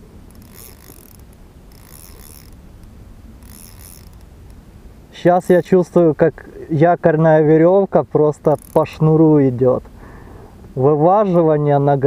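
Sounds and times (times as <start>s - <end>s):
fishing reel scratchy bursts: 0.3s - 2.6s, 3.4s - 4.3s, 8.4s - 9.1s.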